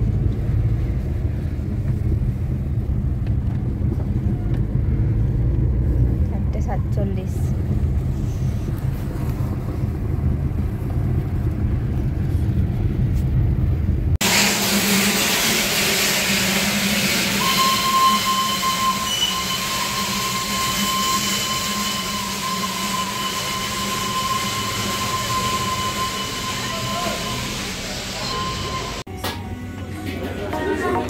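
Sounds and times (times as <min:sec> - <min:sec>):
car interior rumble: 0:00.0 - 0:14.2
steam locomotive hissing: 0:14.2 - 0:29.0
long steady high tone: 0:17.4 - 0:29.9.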